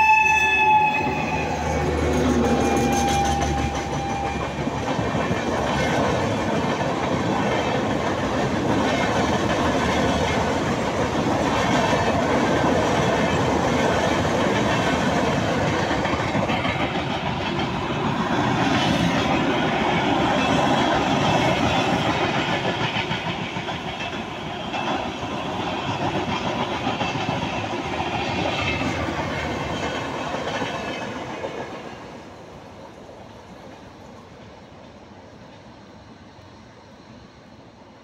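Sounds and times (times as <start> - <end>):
train horn: 0.0 - 4.8
train wheels on rails: 0.0 - 38.0.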